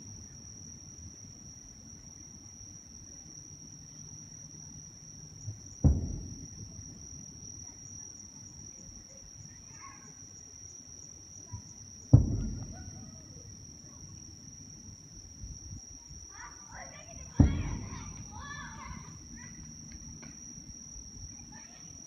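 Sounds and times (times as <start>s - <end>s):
insect chirring: 0.0s - 22.0s
distant firework bursts: 5.8s - 7.1s, 12.1s - 13.5s, 16.9s - 19.5s.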